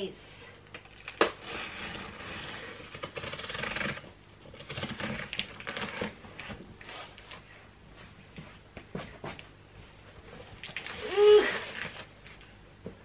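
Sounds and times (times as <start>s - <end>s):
blade cutting tape and cardboard: 1.2s - 6.2s.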